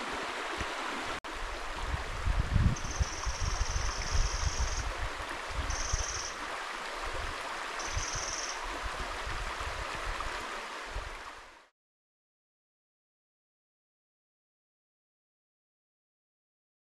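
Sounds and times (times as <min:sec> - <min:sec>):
mountain stream flowing: 0:00.0 - 0:11.7
wind rumble on microphone: 0:01.3 - 0:06.1, 0:07.0 - 0:11.3.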